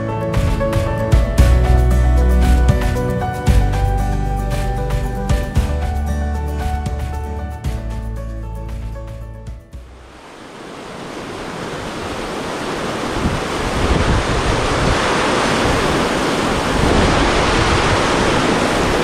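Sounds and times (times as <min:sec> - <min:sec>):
water rushing over spillway: 0:10.0 - 0:19.0.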